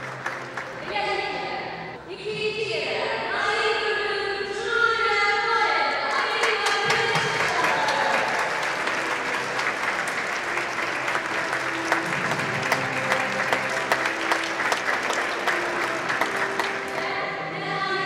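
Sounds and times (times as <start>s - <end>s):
crowd clapping: 0.0s - 0.9s, 6.1s - 17.1s
faint music: 0.0s - 18.0s.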